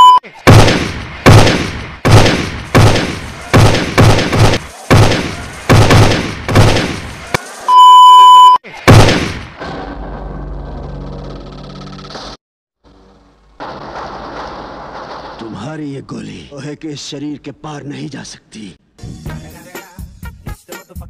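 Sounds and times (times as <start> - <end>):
high-pitched test-tone beep: 0.0 - 0.2, 7.7 - 8.6
rifle gunshots: 0.5 - 7.1, 8.9 - 9.4.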